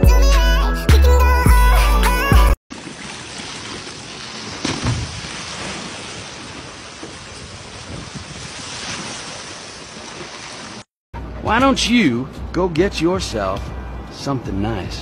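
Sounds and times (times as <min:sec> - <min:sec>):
water rushing down a slide: 0:02.7 - 0:10.9
thump: 0:04.6 - 0:05.3
wind on microphone: 0:07.2 - 0:08.8.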